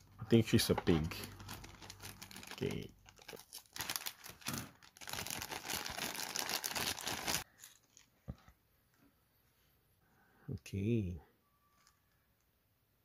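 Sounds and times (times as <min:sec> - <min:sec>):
plastic bag crinkling: 0:01.1 - 0:08.1.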